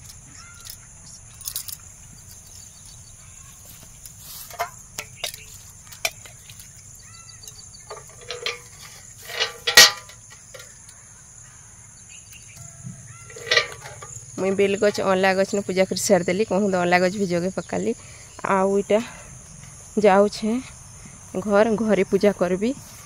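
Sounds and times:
crickets chirping: 0.0 - 23.0
brass pot knocking on bucket: 7.9 - 10.6, 13.2 - 15.0.

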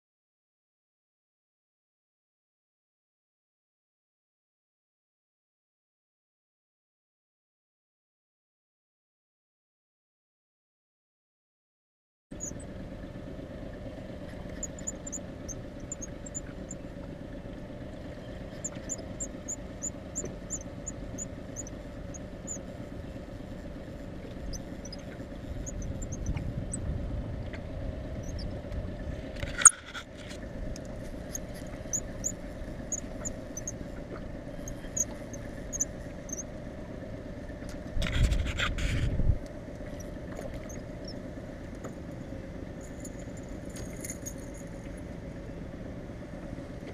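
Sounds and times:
outboard motor idling: 12.4 - 46.9.

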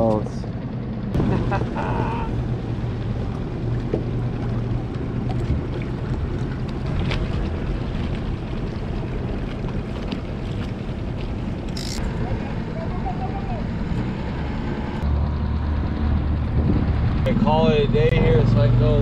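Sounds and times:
outboard motor running: 0.0 - 19.0
water noise: 0.6 - 19.0
wind noise on microphone: 16.0 - 17.3.

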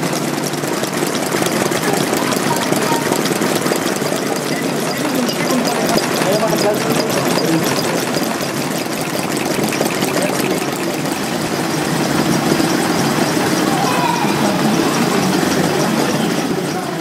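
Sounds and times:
model engines ticking and clattering: 0.0 - 17.0
background voices: 9.9 - 17.0.

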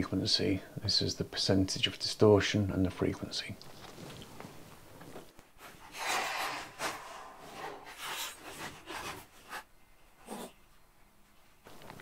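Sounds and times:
short rubbing scraping noises: 5.6 - 10.6.

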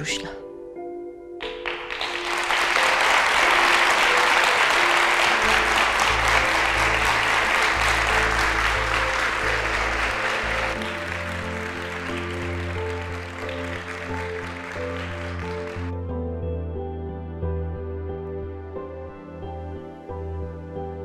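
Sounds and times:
music with sustained notes: 0.0 - 21.0
audience applauding: 1.4 - 16.0.

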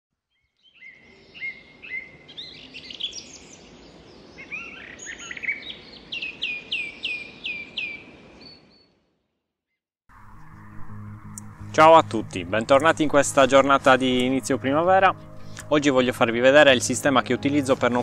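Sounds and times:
songbirds singing: 0.3 - 9.0, 12.5 - 18.0
faint outdoor hiss: 0.6 - 8.7, 10.2 - 18.0.

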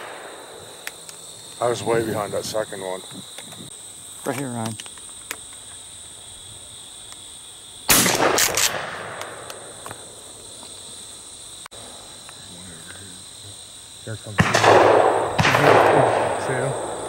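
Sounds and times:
shotgun blasts with echo: 0.0 - 0.7, 7.9 - 9.5, 14.4 - 17.0
crickets and insects buzzing: 0.0 - 17.0.

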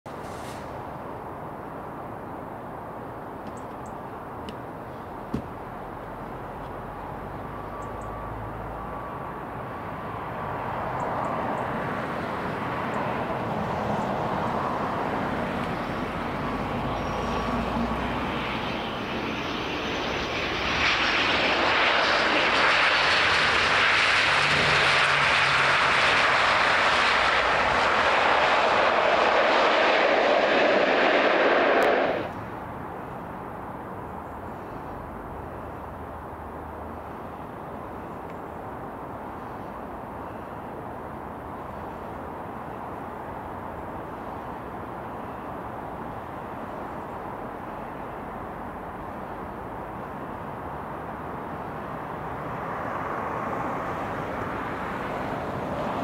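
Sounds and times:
turboprop airliner landing: 3.2 - 33.2, 46.1 - 56.0.

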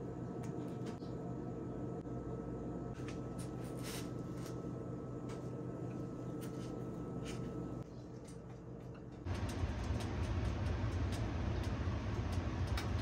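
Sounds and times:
steady low hum: 0.0 - 13.0
low rumble: 9.3 - 13.0.

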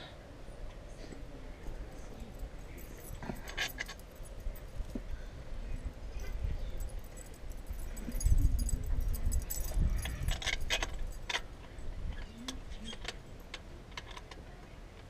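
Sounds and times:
wrench and bolts clinking: 1.6 - 4.9, 6.2 - 11.5.

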